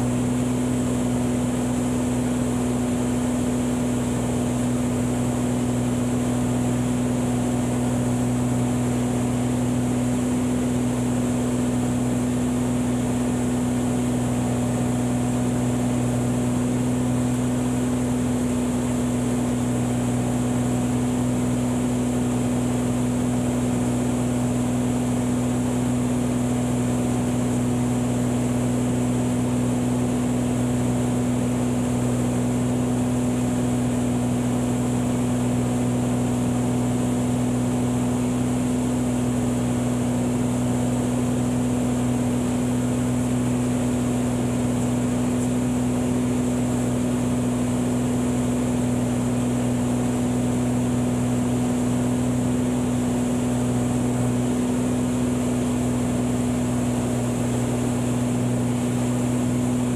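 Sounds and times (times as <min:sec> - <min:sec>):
propeller plane engine droning: 0:00.0 - 0:59.9.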